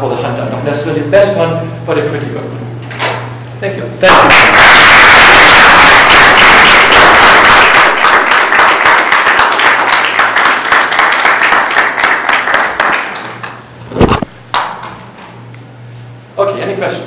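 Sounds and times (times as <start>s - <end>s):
audience applauding: 4.1s - 13.6s
short thump: 13.9s - 14.4s.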